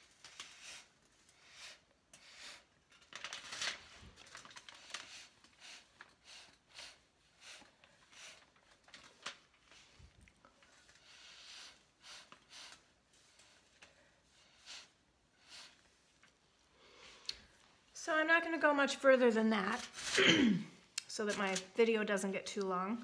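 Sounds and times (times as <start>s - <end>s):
breath puffs through a straw: 0.4s - 2.7s, 5.0s - 8.6s, 10.8s - 16.0s.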